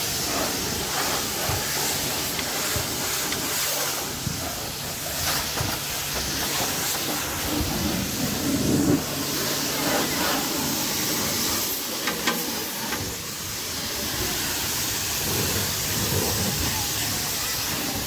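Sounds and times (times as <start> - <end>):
pressure washer water jet hiss: 0.0 - 18.0.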